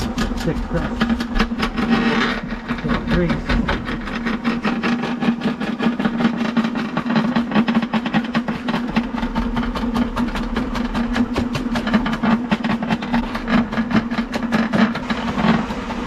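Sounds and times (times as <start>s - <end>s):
drain-cleaning machine humming: 0.0s - 16.0s
spinning cable clattering in pipe: 0.0s - 16.0s.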